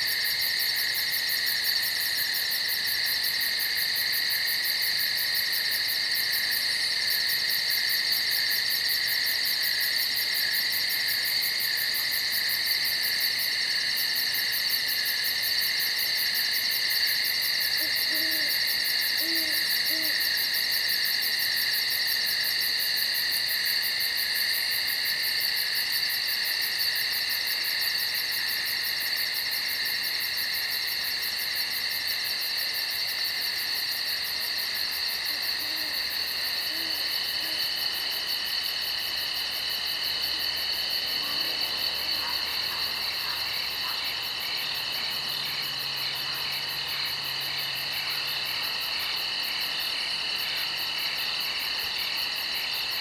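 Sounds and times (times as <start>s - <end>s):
crickets and insects trilling: 0.0s - 53.0s
owl hooting: 17.8s - 20.2s, 36.6s - 37.6s.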